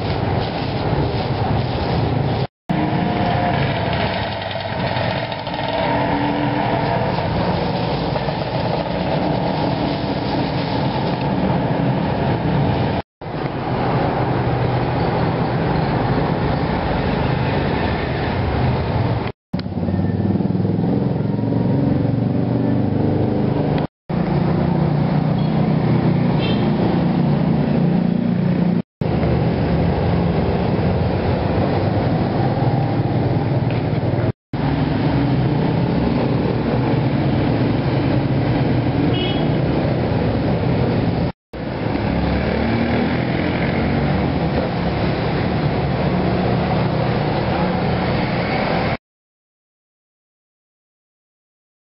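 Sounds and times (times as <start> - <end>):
street traffic rumble: 0.0 - 49.0.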